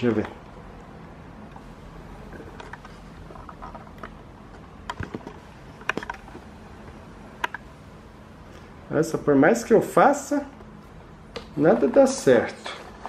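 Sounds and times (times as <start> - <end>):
faint steady hum: 0.0 - 13.0
plastic fan housing clicks and knocks: 4.8 - 6.4.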